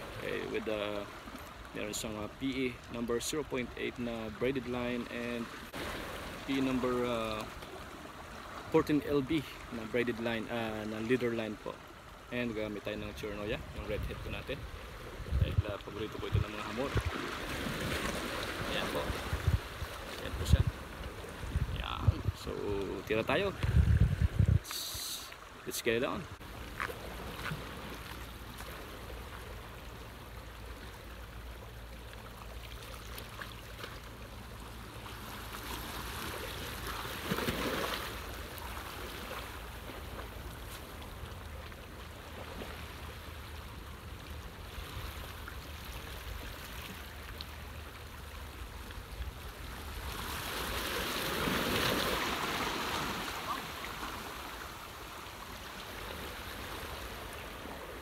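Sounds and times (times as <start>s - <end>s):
seawater washing and splashing: 16.0s - 21.7s, 26.4s - 58.0s.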